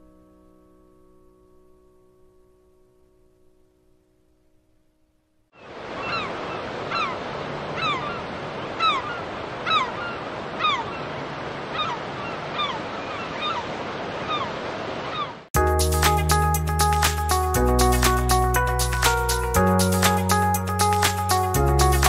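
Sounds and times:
wind: 5.5s - 16.2s
sea waves: 5.5s - 21.5s
bird's short descending call: 6.0s - 7.2s.

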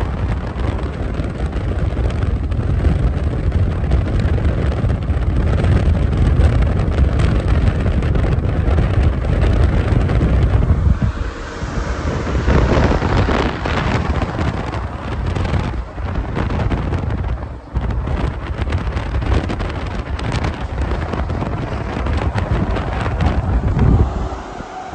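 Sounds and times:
wind buffeting microphone: 0.0s - 24.9s
highway traffic passing: 7.6s - 24.9s.

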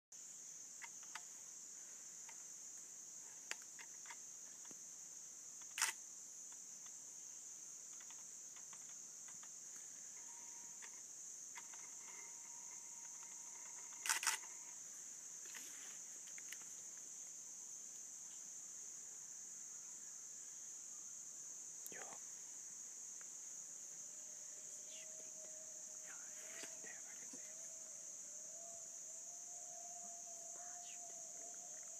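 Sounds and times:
forest insects droning: 0.1s - 31.9s
sharp clicks: 5.6s - 6.0s, 10.8s - 14.6s.

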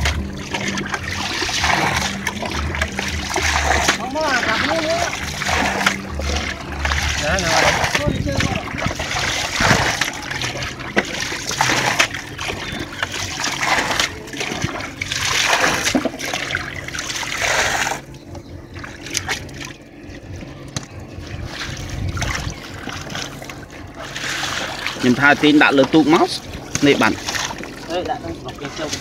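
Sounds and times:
water dripping: 0.0s - 19.8s
water splashing: 0.0s - 29.0s.

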